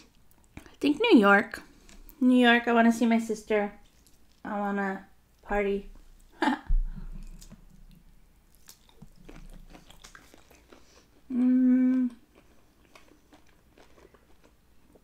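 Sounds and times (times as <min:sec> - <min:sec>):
person chewing shrimp: 0:06.8 - 0:15.0
wet mouth clicks: 0:07.0 - 0:10.9
person humming mmm: 0:11.2 - 0:12.3.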